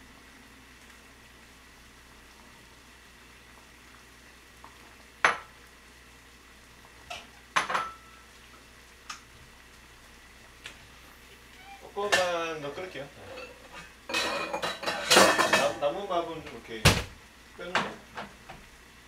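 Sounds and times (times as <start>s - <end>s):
faint steady hum: 0.0s - 19.0s
dishes and utensils clinking: 7.1s - 8.1s, 13.2s - 15.8s.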